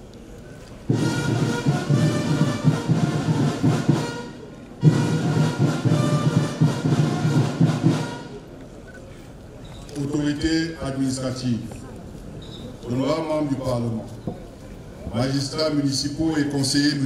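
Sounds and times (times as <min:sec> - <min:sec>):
ceremonial band music: 0:00.8 - 0:08.8.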